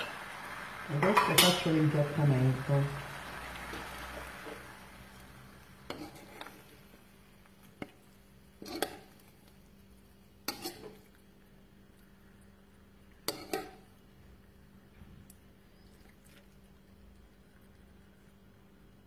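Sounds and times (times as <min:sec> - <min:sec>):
metal spoon clinking and scraping: 0:05.9 - 0:06.6, 0:10.5 - 0:11.1, 0:13.2 - 0:13.8.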